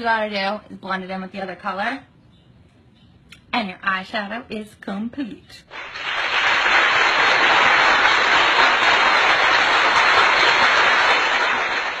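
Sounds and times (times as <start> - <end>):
crowd clapping: 5.7 - 12.0.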